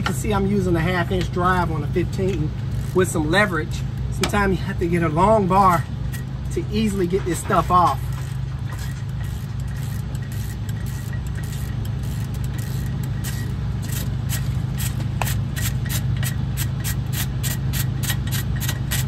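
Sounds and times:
steady low hum: 0.0s - 19.0s
ratchet clicking: 2.3s - 3.2s, 6.1s - 19.0s.

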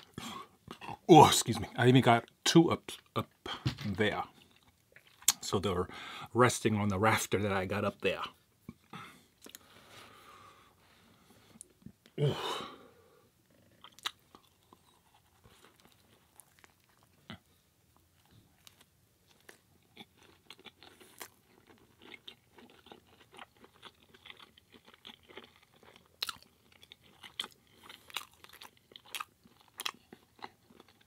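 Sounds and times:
chewing food: 4.3s - 5.4s, 13.5s - 31.0s.

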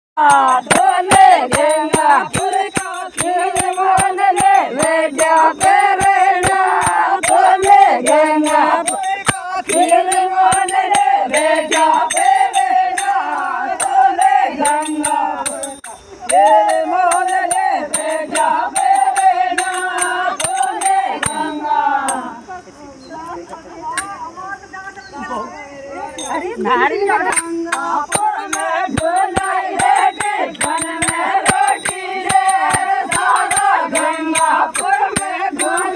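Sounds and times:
women singing together: 0.2s - 35.9s.

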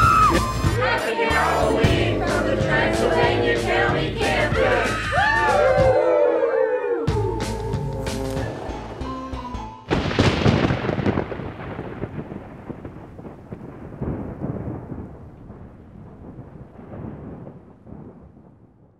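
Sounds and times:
thunder crack and rolling rumble: 9.9s - 18.9s.

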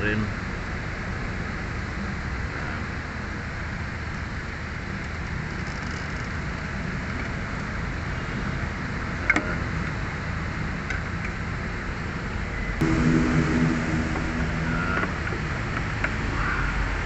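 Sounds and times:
low rumble and hiss: 12.8s - 16.2s.

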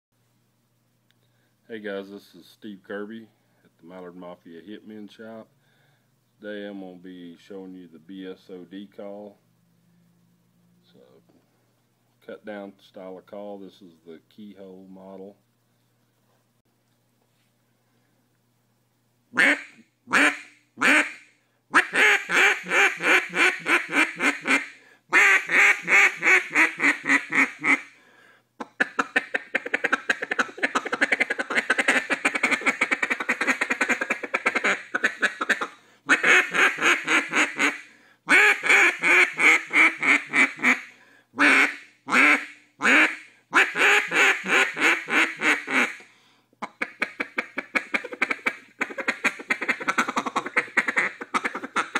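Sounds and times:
duck call quacks: 19.4s - 28.0s, 28.6s - 51.9s.

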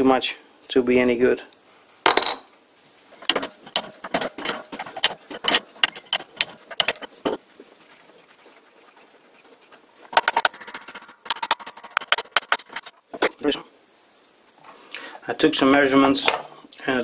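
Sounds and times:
metal clicks and clinks: 3.2s - 7.1s.

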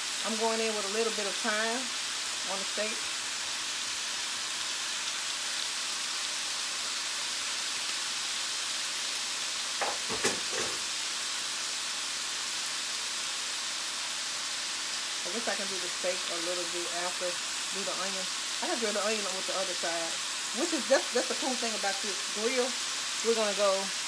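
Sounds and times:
steaks sizzling on a grill: 0.0s - 24.0s
short knock: 9.8s - 10.8s.

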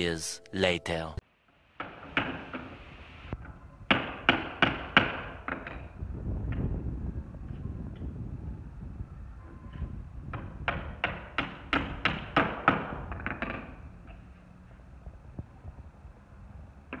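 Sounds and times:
hammer driving nail into wood: 3.9s - 5.9s, 10.3s - 13.7s.

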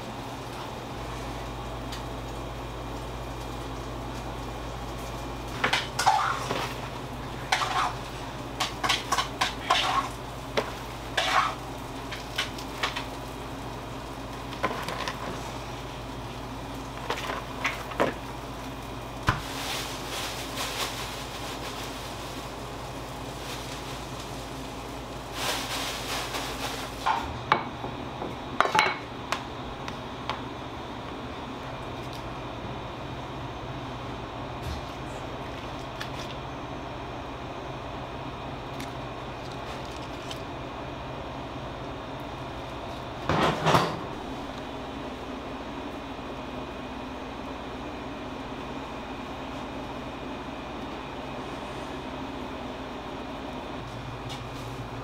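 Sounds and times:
metal utensils and trays clattering: 8.6s - 10.2s, 43.3s - 44.0s.

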